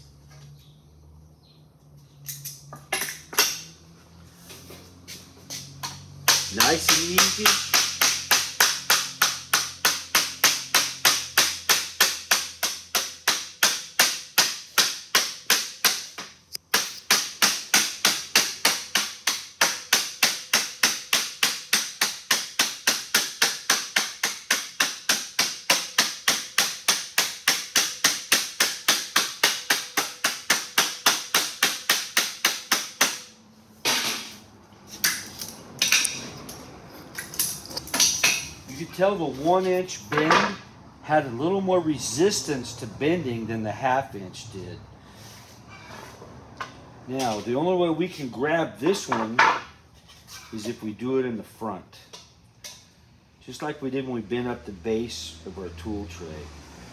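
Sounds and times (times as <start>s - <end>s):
rubber mallet tapping sheet metal: 6.2s - 33.3s.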